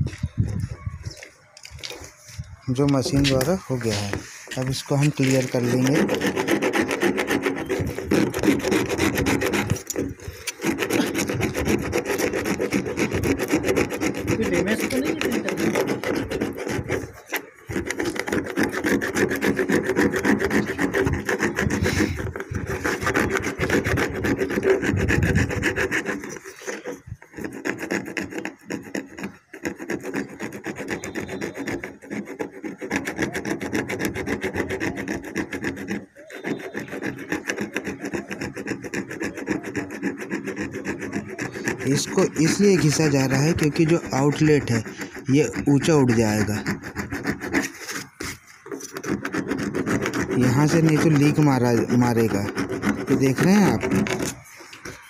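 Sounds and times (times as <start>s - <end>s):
file rasping on plastic: 0.0s - 55.0s.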